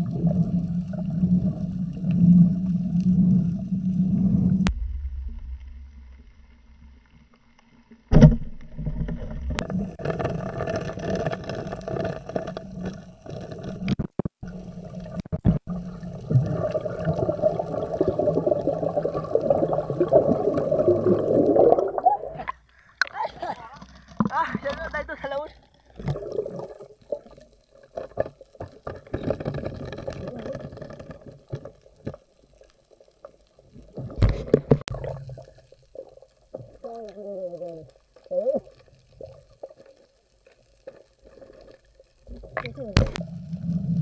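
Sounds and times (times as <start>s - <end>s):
muffled underwater hum: 0.0s - 10.4s.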